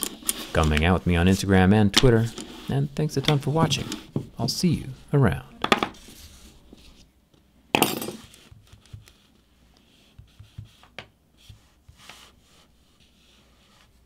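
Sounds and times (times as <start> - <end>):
hand tools clattering on tabletop: 7.8 - 8.2.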